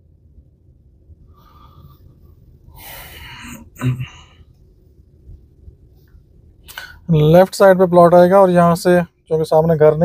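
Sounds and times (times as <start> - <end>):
faint low rumble: 0.0 - 10.0
person exhaling or sniffing: 2.7 - 4.4
low throat sound: 3.4 - 4.4.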